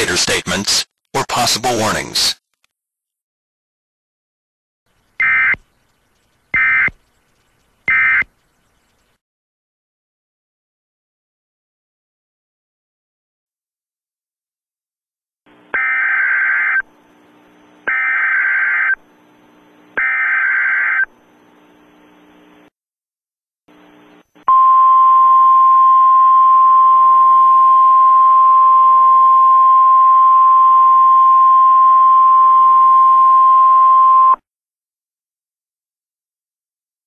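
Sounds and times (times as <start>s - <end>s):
steady warning alarm tone: 7.9s - 8.2s.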